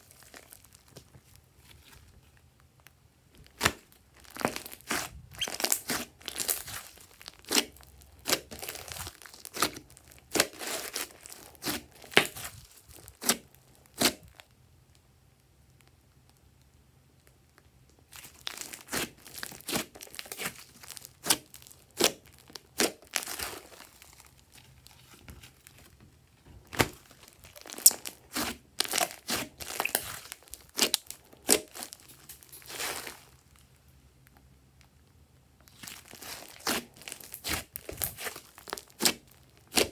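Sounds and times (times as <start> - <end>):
slime squeezed with crackling pops: 3.5 - 14.4, 26.7 - 33.2, 35.7 - 39.9.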